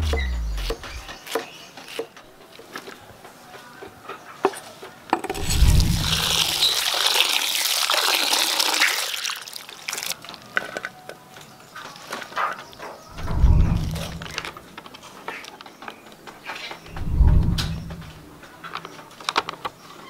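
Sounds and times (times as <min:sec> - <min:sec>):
tap water pouring into a bowl: 0:05.3 - 0:10.4.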